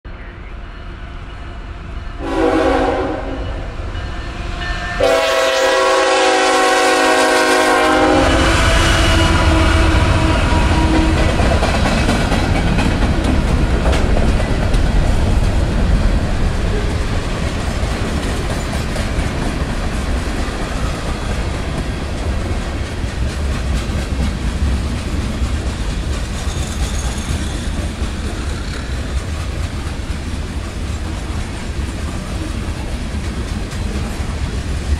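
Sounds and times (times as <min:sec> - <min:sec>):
train rumbling past: 0:00.1 - 0:34.9
train horn blasts: 0:02.1 - 0:11.4
wheels clacking over rail joints: 0:10.0 - 0:34.9.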